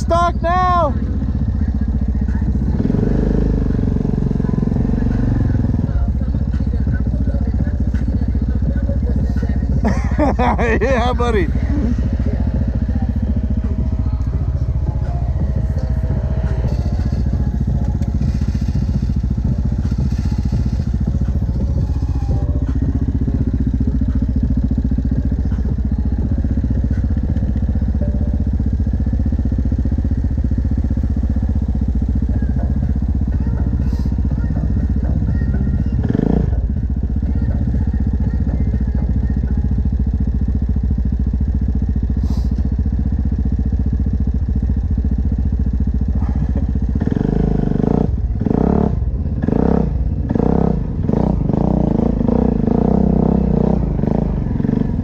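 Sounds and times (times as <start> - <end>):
atv engine idling: 0.0 - 55.0.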